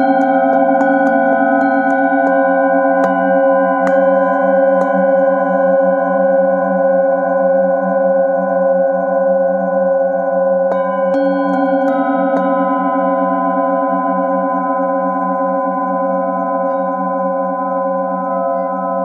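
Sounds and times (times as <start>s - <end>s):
singing bowls struck: 0.0s - 8.6s, 10.7s - 19.0s
ringing bowl tones: 0.0s - 19.0s.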